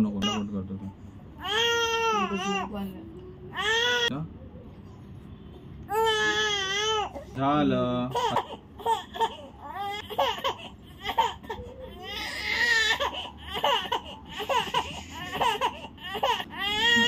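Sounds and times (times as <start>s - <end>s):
baby whimpering and crying: 1.4s - 2.8s, 3.5s - 4.1s, 5.9s - 7.4s, 8.1s - 17.0s.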